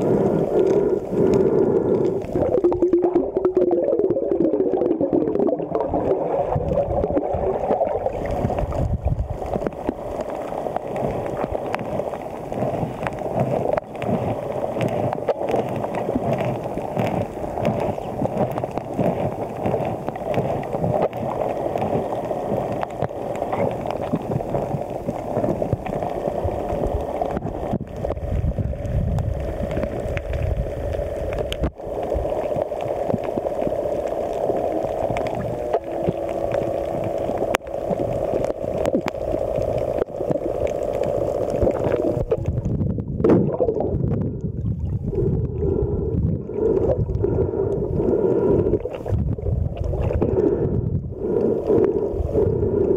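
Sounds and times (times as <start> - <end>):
muffled underwater rush: 0.0 - 52.9.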